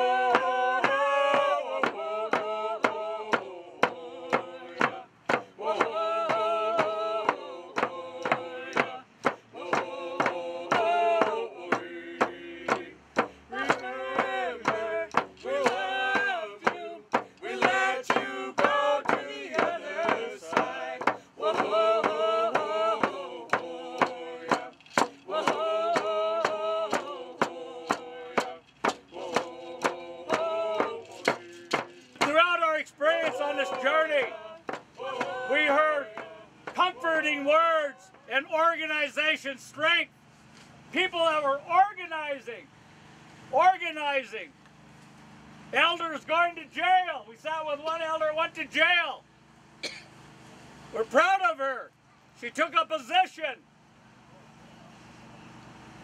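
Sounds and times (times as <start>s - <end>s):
hand drums steady beat: 0.0s - 32.4s, 33.2s - 37.0s
group of voices singing: 0.0s - 39.2s.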